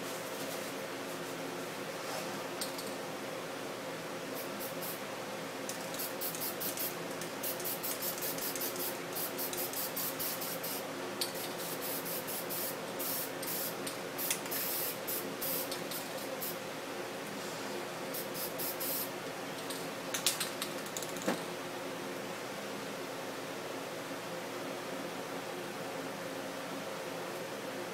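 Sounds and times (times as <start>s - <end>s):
spray paint can hissing: 5.7s - 16.6s, 18.2s - 19.1s.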